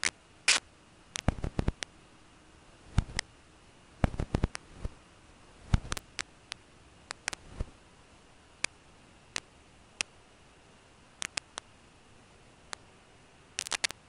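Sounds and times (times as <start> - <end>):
sharp clicks and ticks: 0.0 - 1.9, 5.8 - 7.4, 11.2 - 11.7, 13.6 - 14.0
faint steady hiss: 0.0 - 14.0.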